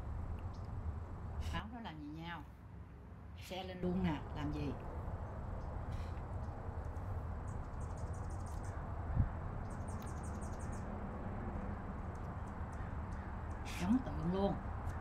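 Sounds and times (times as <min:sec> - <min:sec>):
rapid high-pitched chirping: 0:09.7 - 0:10.9.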